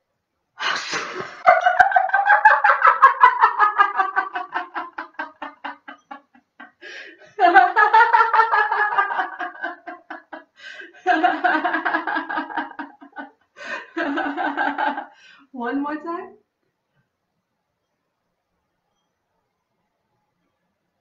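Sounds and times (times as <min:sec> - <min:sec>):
woman laughing: 0:00.7 - 0:15.1.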